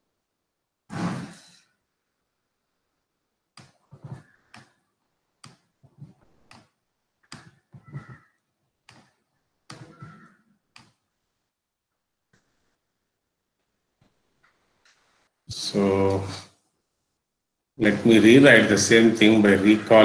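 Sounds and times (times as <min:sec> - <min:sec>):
soft clicks and taps on computer: 0:03.5 - 0:04.8, 0:05.4 - 0:08.2, 0:08.8 - 0:11.1.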